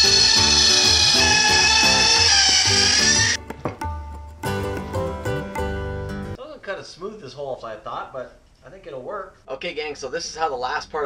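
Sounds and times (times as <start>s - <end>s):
spiral saw whining through wood: 0.0s - 3.4s
music with plucked bass line: 0.0s - 6.4s.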